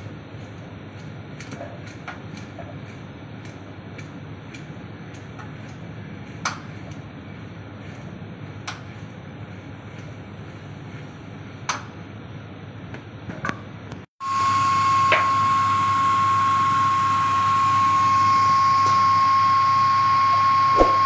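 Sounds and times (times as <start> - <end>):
machine high whine: 14.2 - 21.0
low hum: 14.5 - 21.0.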